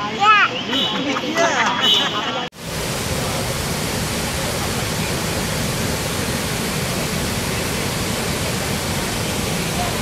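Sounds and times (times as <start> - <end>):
waterfall rushing: 2.6 - 10.0.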